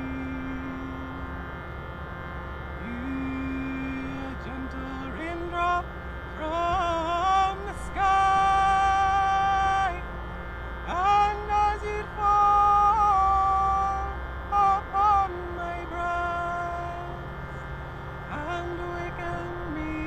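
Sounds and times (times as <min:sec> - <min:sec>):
person singing drawn-out notes: 0:00.0 - 0:20.0
steady low drone: 0:00.0 - 0:20.0.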